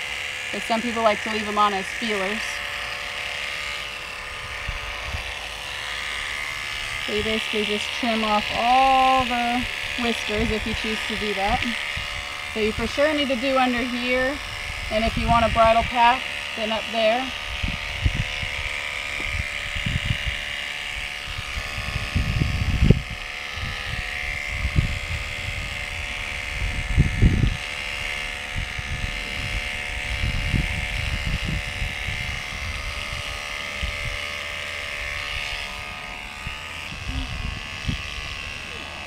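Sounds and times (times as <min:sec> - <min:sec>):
electric clippers humming: 0:00.0 - 0:39.0.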